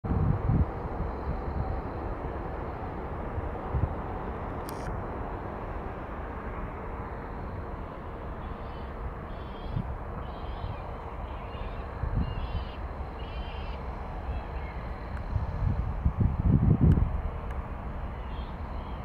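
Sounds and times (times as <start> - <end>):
distant jet engines rumbling: 0.1 - 19.0
bird calling: 7.9 - 15.1, 18.1 - 19.0.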